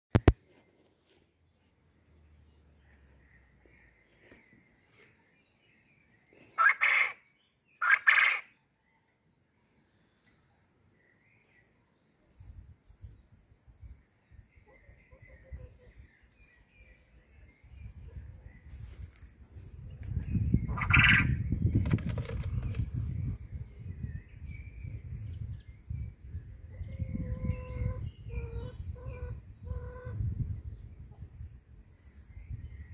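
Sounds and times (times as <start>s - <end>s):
clicky noise: 0.1s - 0.4s
quail crowing: 6.6s - 7.2s, 7.8s - 8.6s, 20.7s - 21.4s, 26.8s - 30.2s.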